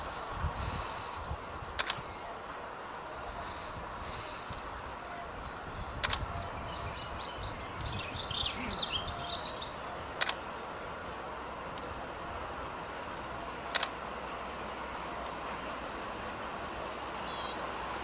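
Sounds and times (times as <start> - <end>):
bird chirping: 0.0 - 0.3, 5.1 - 10.1, 16.4 - 18.0
low outdoor rumble: 0.0 - 18.0
camera shutter clicks: 1.7 - 2.0, 6.0 - 6.3, 10.2 - 10.4, 13.7 - 14.0.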